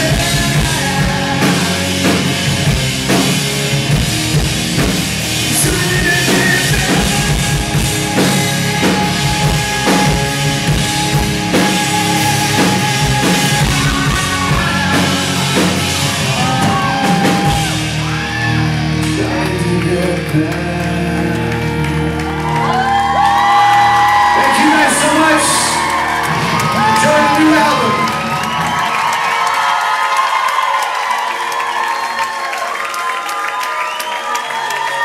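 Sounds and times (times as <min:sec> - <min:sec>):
man singing: 0:00.0 - 0:02.6, 0:05.4 - 0:16.6, 0:19.0 - 0:22.7
drum kit hits: 0:00.0 - 0:18.1
live rock band playing: 0:00.0 - 0:35.0.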